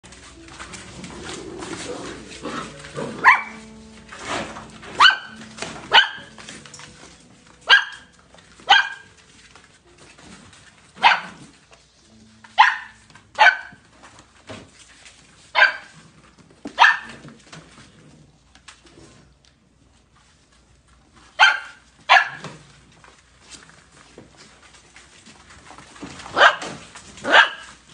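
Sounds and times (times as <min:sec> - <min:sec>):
puppies yapping barks: 0:02.2 - 0:03.7, 0:04.8 - 0:06.6, 0:07.6 - 0:09.2, 0:11.0 - 0:11.5, 0:12.5 - 0:13.8, 0:15.6 - 0:16.0, 0:16.8 - 0:17.2, 0:21.4 - 0:22.5, 0:26.4 - 0:27.8.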